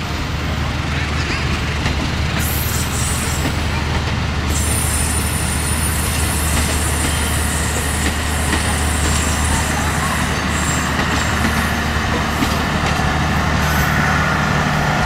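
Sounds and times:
train wheels rolling on rail: 0:00.0 - 0:15.0.

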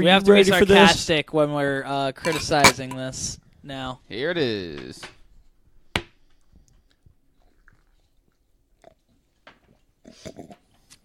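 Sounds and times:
people sipping and swallowing: 0:06.4 - 0:09.2.

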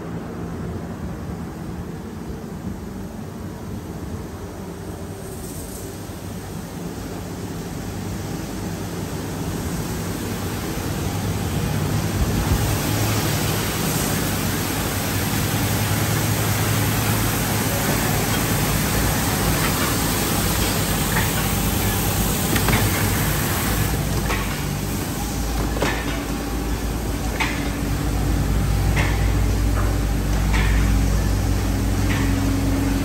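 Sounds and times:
low hum of motors: 0:00.0 - 0:33.0
car wash equipment working: 0:07.8 - 0:33.0.

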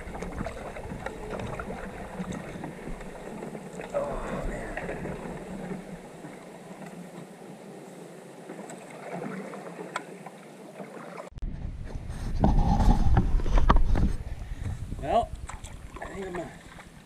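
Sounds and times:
paddle splashing: 0:00.0 - 0:17.0
quiet water sounds: 0:00.0 - 0:17.0
wind buffeting microphone: 0:11.4 - 0:17.0.

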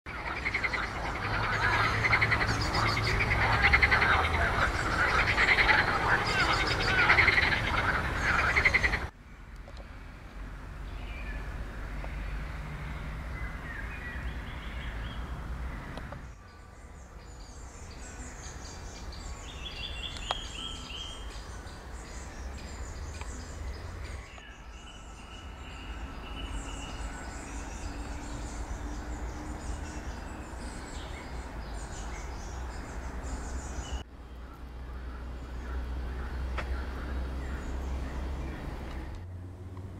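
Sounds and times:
small birds chirping: 0:00.1 - 0:09.1, 0:10.8 - 0:39.2.

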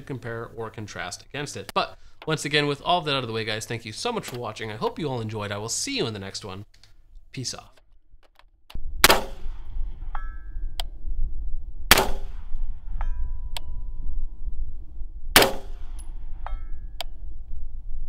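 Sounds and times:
wind rumble on microphone: 0:08.7 - 0:18.0
rifle shots: 0:09.0 - 0:09.7, 0:11.9 - 0:12.5, 0:15.4 - 0:16.0
metallic ping of steel target: 0:09.1 - 0:10.8, 0:11.9 - 0:14.0, 0:15.4 - 0:17.0.

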